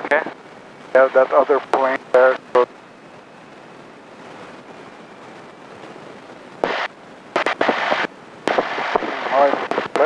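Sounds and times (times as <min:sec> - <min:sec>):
airplane engine and cabin hiss: 0:00.0 - 0:10.0
intercom hiss bursts with clicks: 0:06.6 - 0:10.0.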